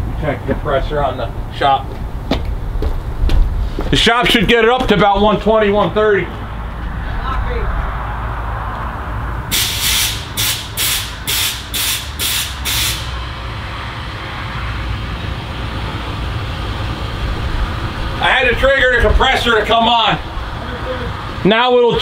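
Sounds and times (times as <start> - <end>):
steady low rumble: 0.0 - 22.0
compressed air hissing spurts: 9.5 - 13.2.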